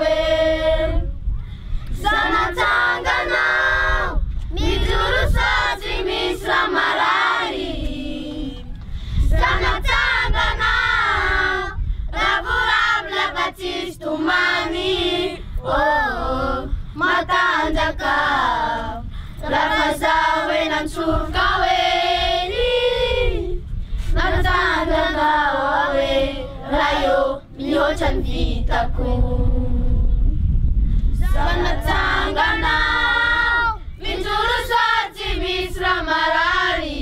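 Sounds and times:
children's choir singing: 0.0 - 1.0, 2.0 - 8.7, 31.3 - 37.0.

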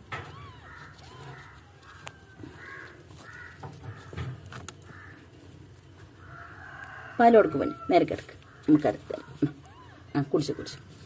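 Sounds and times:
crows cawing: 0.5 - 5.4, 6.2 - 8.8.

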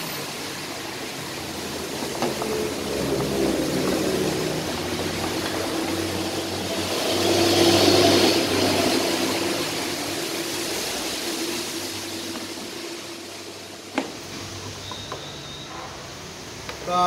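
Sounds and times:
rising hiss: 0.0 - 14.8.

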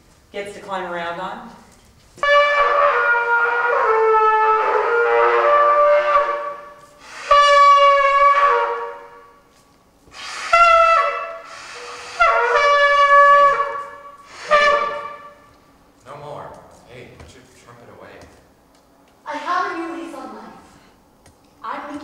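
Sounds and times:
trumpet playing held notes: 2.2 - 9.4, 10.2 - 15.6.

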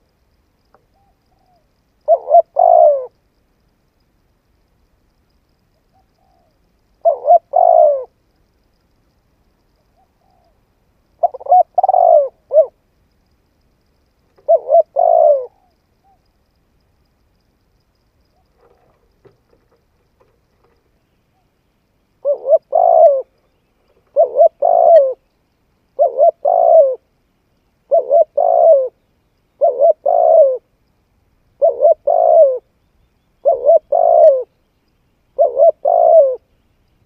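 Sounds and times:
dove cooing: 0.9 - 3.2, 5.9 - 8.2, 11.2 - 12.8, 14.4 - 16.2, 22.2 - 25.3, 26.0 - 27.1, 27.8 - 30.7, 31.6 - 32.7, 33.4 - 34.6, 35.4 - 36.5.

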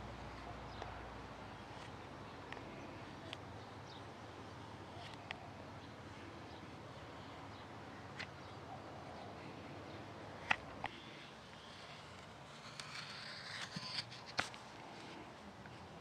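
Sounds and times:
knife rasping cut: 12.6 - 14.3.

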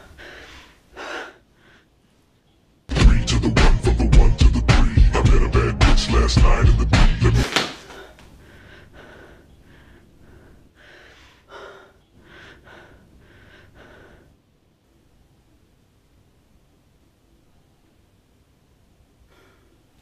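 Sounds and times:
woman breathing heavily: 0.0 - 2.0, 7.8 - 14.5, 19.2 - 20.0
loud music with heavy beat: 2.9 - 7.5.

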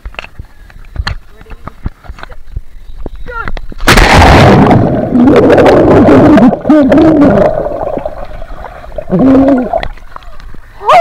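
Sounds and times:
underwater bubbles and churning: 4.0 - 10.8
muffled voice underwater: 5.2 - 8.0, 9.1 - 11.0.

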